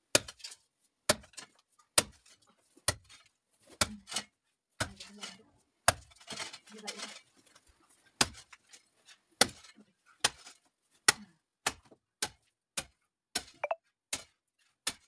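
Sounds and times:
digging tool striking earth: 1.1s - 2.2s.

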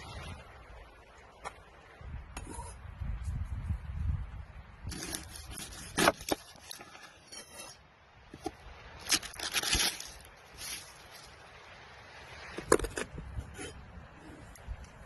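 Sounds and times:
garlic skin crackling: 9.0s - 11.1s.

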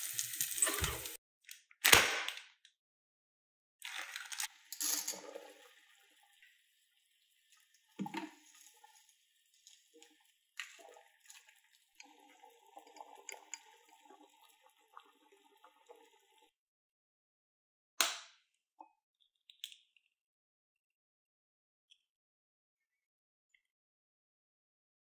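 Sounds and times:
water boiling and bubbling: 3.8s - 16.5s.

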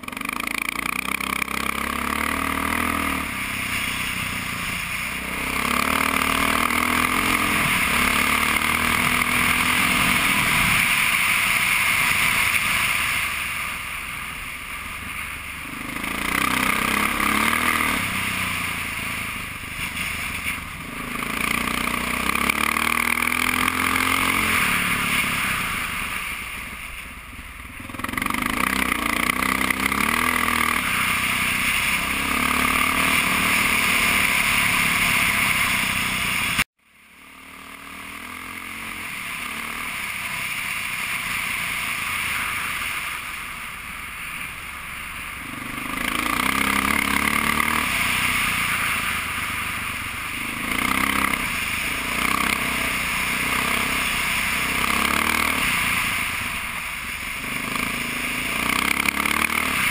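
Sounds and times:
dirt bike engine revving: 0.0s - 14.0s, 14.9s - 26.3s, 27.8s - 43.2s, 45.2s - 59.9s.

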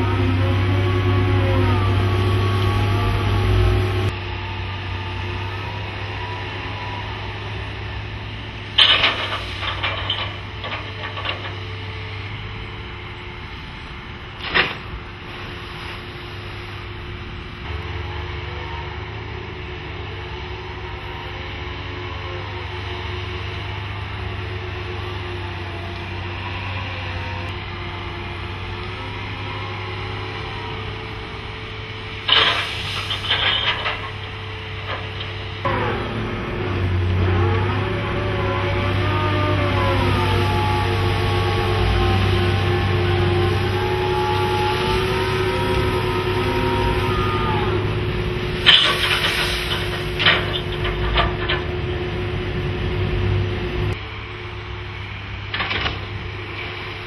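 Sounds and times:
diesel engine droning: 0.0s - 57.0s
gravel clicking and rattling: 8.8s - 11.8s, 32.2s - 35.6s.

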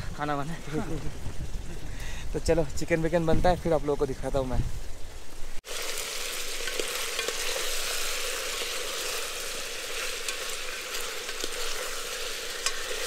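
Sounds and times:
chicken sizzling in frying: 5.6s - 13.0s.

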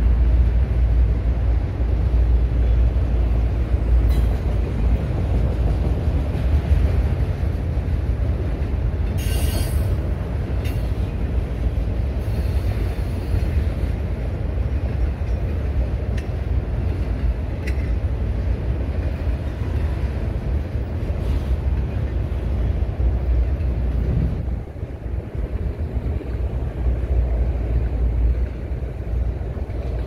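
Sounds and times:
freight train wheels rumbling on rail: 0.0s - 30.0s
sharp clicks from wheels: 14.8s - 18.2s.

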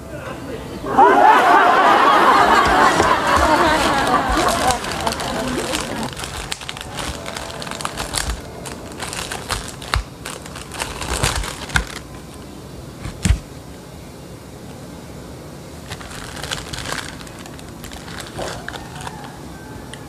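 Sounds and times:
food wrapper crinkling: 2.5s - 13.4s, 15.8s - 19.4s.

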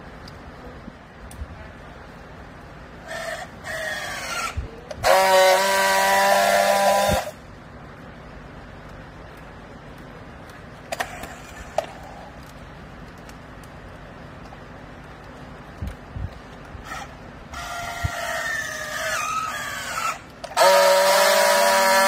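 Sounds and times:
strapping tool motor buzz: 3.1s - 7.4s, 16.8s - 22.0s.

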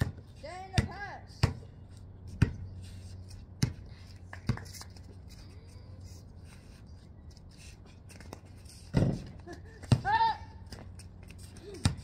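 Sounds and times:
basketball bouncing on concrete: 0.0s - 1.7s, 2.3s - 2.7s, 3.5s - 4.8s, 8.9s - 11.0s, 11.6s - 12.0s.

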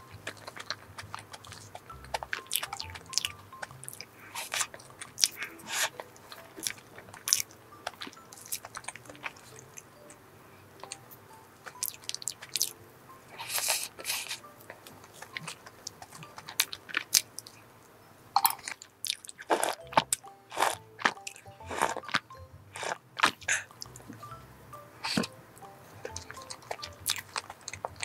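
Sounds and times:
crunchy wet chewing: 0.0s - 10.2s, 11.6s - 17.6s, 18.4s - 24.2s, 25.0s - 28.0s
sipping hot coffee: 0.0s - 17.6s.

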